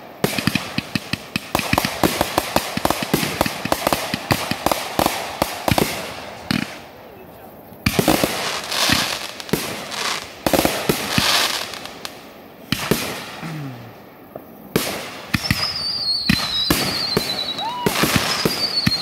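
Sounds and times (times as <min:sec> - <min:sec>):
crackling hiss: 0:00.0 - 0:19.0
firework bangs: 0:00.0 - 0:19.0
falling firework whistle: 0:15.3 - 0:19.0.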